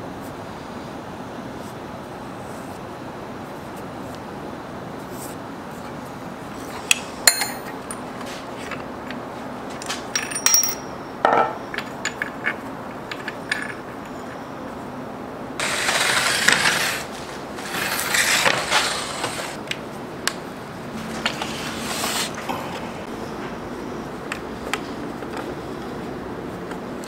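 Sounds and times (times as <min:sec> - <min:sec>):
metal clinks and taps: 0:07.3 - 0:08.0, 0:09.8 - 0:12.3.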